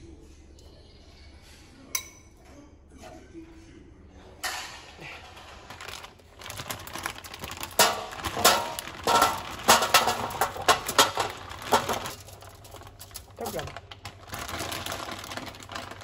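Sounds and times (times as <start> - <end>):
frozen pieces rattling on foil: 5.0 - 16.0
plastic bag and foil crinkling: 5.0 - 16.0.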